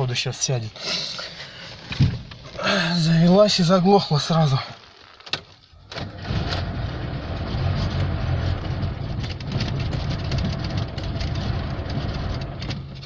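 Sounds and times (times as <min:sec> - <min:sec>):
car engine running unevenly: 0:06.0 - 0:13.0.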